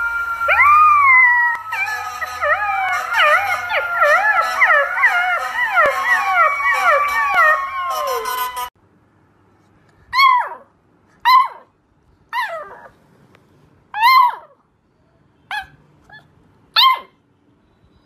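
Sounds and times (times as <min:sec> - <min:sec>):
puppy howling: 0:00.0 - 0:08.7
puppy yelping barks: 0:10.1 - 0:11.7, 0:14.0 - 0:14.6, 0:15.5 - 0:17.2.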